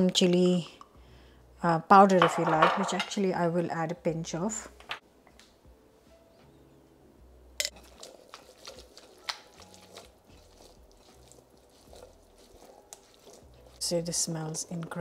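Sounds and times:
wet squishing: 7.8s - 14.0s.

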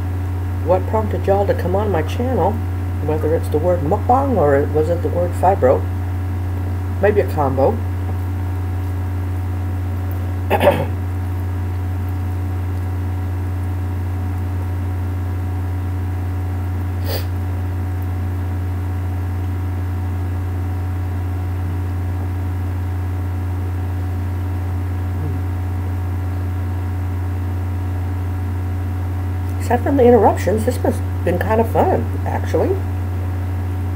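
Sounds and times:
low electrical hum: 0.0s - 33.9s.

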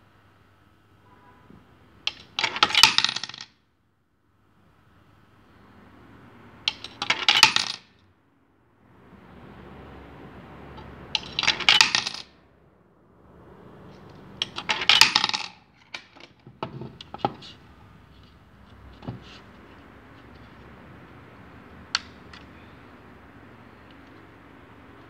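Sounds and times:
coins clinking into coin box: 2.1s - 3.5s, 6.7s - 7.9s, 11.2s - 12.3s, 14.4s - 16.2s.

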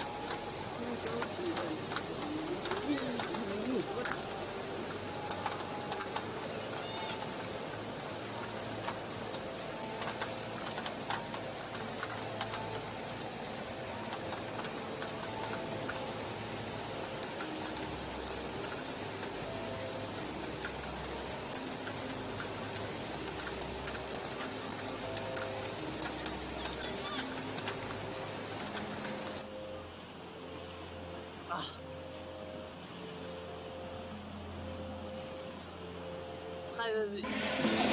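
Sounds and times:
floodwater rushing: 0.0s - 29.4s, 37.2s - 37.9s.

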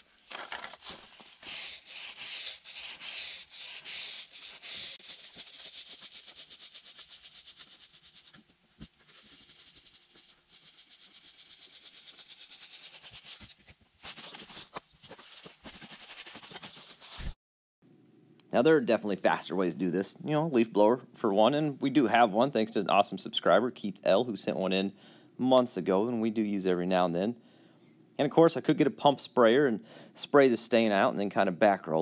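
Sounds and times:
broom sweeping wooden boards: 0.0s - 8.1s.

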